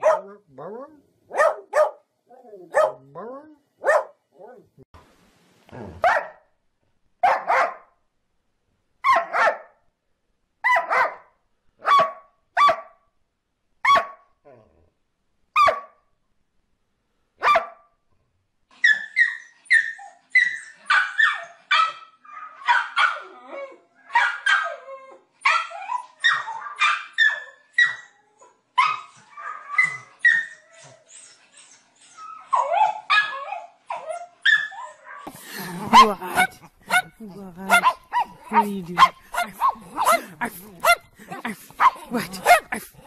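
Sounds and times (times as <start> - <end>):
dog barking: 0.0 - 0.4, 1.3 - 2.0, 2.7 - 3.1, 3.8 - 4.2, 6.0 - 6.4, 7.2 - 7.9, 9.0 - 9.8, 10.6 - 13.0, 13.8 - 14.3, 15.6 - 16.0, 17.4 - 17.9, 20.9 - 23.3, 24.1 - 24.8, 34.6 - 43.0.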